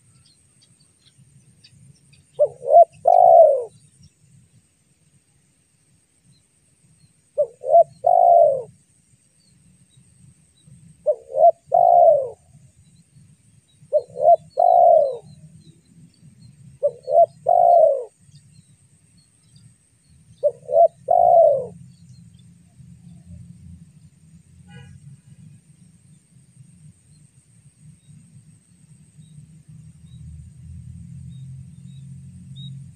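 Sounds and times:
dove cooing: 2.4 - 3.8, 7.4 - 8.8, 11.0 - 12.5, 13.8 - 15.4, 16.8 - 18.2, 20.4 - 21.8.

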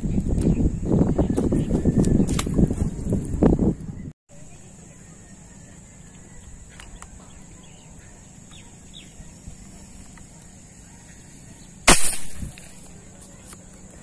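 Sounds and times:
faint bird chirps: 4.0 - 11.8
slingshot arrow snap and rush: 11.8 - 12.9.

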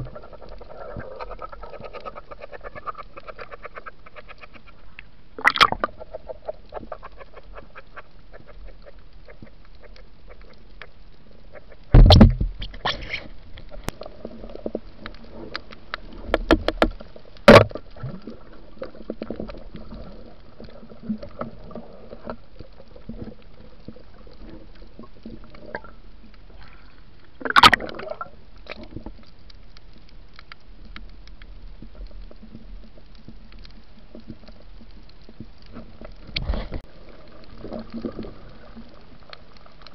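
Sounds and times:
crackle of fine underwater clicks: 0.0 - 39.9
loud underwater thump: 12.0 - 12.5.

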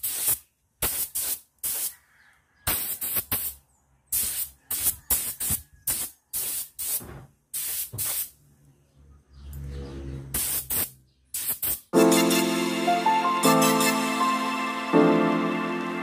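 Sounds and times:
paint spray hissing bursts: 0.0 - 2.0, 2.7 - 8.4, 10.3 - 12.6.

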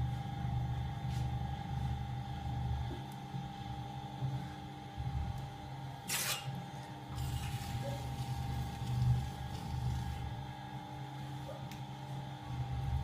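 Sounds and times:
potter's wheel motor hum: 0.0 - 13.0.

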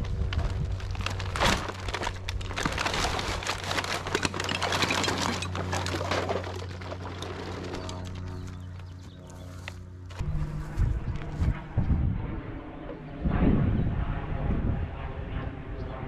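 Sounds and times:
steady low drone: 0.0 - 16.0
sack rustling: 0.1 - 8.4
bottles and cans clattering: 2.4 - 8.3.

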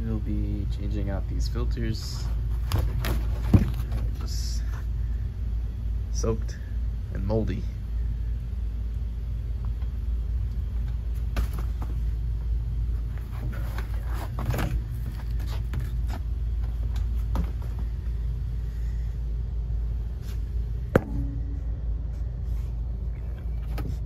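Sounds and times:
low machinery rumble: 0.0 - 24.0
knocks and scrapes of air filters: 2.1 - 4.4, 13.0 - 18.0.

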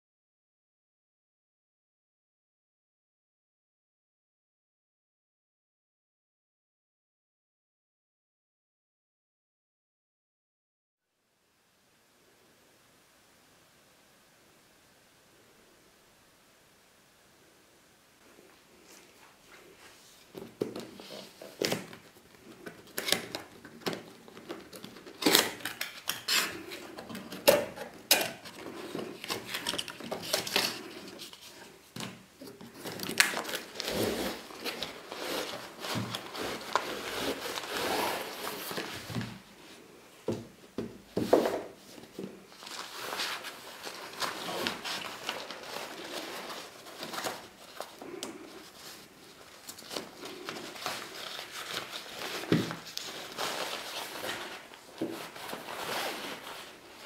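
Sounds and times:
contents sliding out rustling: 18.8 - 39.9, 41.1 - 57.0
nylon bag rustling: 20.8 - 31.9, 32.6 - 39.2, 42.0 - 57.0.

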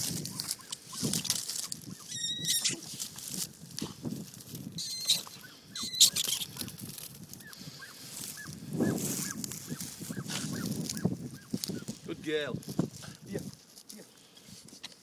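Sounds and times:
dog rustling through stubble: 0.0 - 5.3, 6.2 - 15.0
rat squealing: 0.2 - 3.0, 4.7 - 6.8, 7.4 - 11.9.

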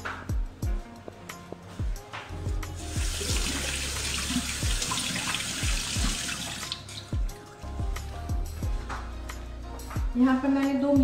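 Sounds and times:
tap water running into sink: 2.8 - 7.3.

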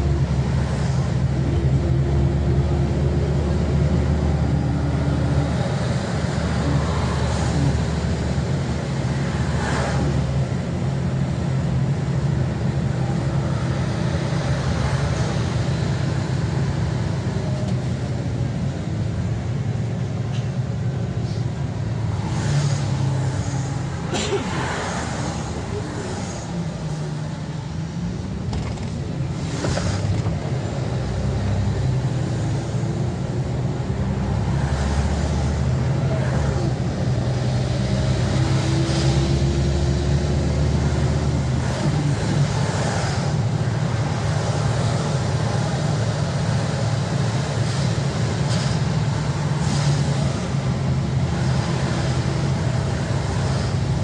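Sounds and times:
bus engine hum: 0.0 - 54.0
cars passing: 0.0 - 54.0.

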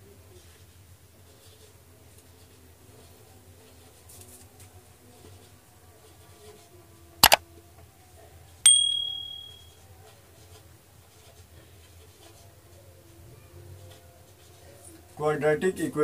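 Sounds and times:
bright bell ding: 8.7 - 9.7.

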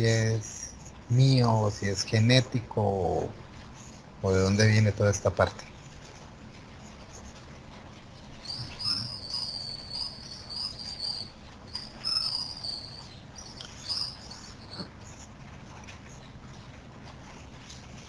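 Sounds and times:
faint steady hiss: 0.0 - 18.0
high-pitched insect trill: 8.4 - 14.9.

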